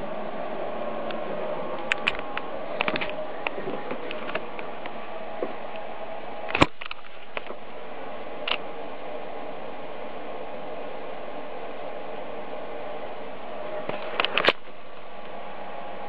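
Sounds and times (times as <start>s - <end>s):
faint hum: 0.0s - 16.0s
steady hiss: 0.0s - 16.0s
small clicks: 13.9s - 14.6s.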